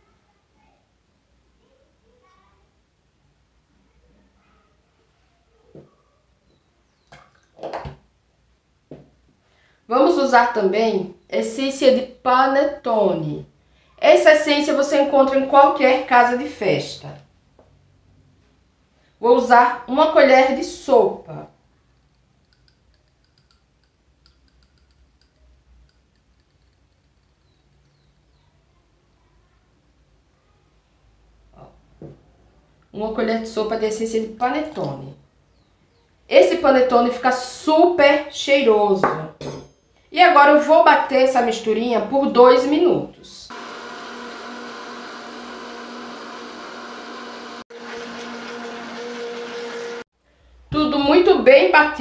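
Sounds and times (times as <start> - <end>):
blender motor whirring: 43.5 - 50.0.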